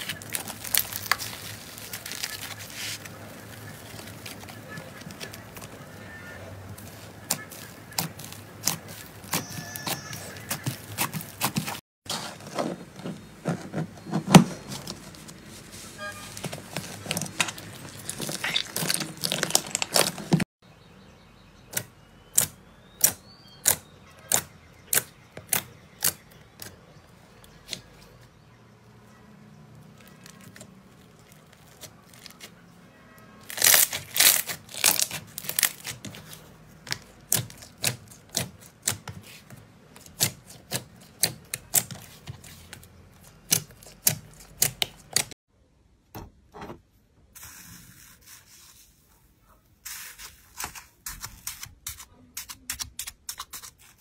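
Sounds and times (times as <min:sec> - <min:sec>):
hands squishing slime: 0:16.8 - 0:20.4
slime popping: 0:17.4 - 0:20.4.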